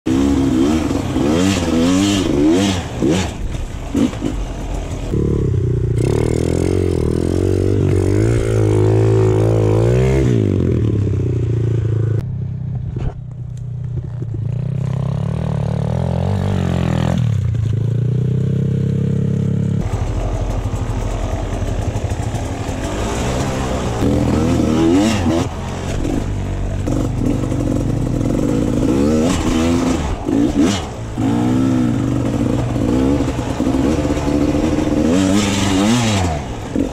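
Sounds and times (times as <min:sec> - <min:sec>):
motorcycle engines revving: 0:00.1 - 0:36.9.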